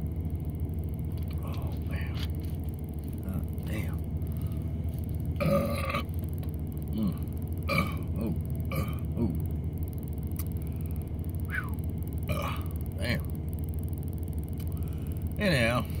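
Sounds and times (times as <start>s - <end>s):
vehicle cab hum: 0.0s - 16.0s
man belching: 5.4s - 6.1s, 6.9s - 9.5s, 12.3s - 13.2s.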